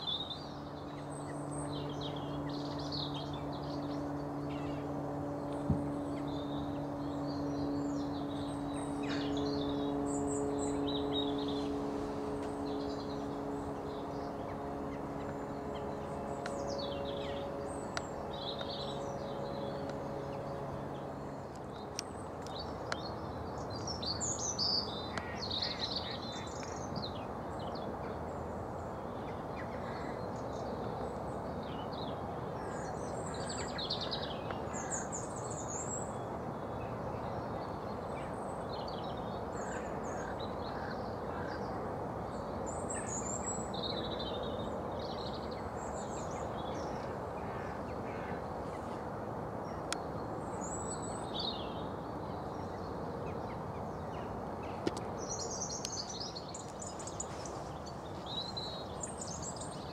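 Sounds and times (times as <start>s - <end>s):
small birds chirping: 0.0s - 28.2s, 42.4s - 59.9s
low background noise: 0.0s - 59.9s.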